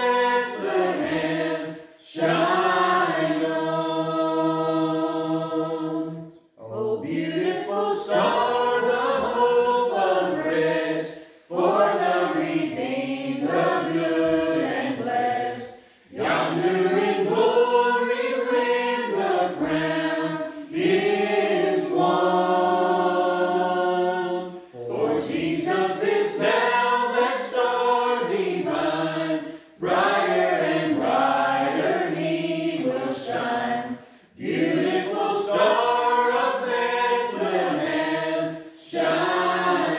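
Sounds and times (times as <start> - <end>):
group singing carol unaccompanied: 0.0 - 39.9.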